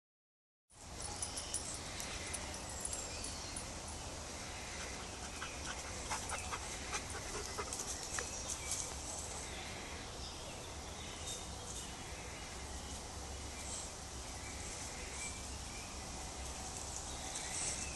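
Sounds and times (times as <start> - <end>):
dogs panting: 4.7 - 9.3
dogs sniffing: 4.7 - 9.3.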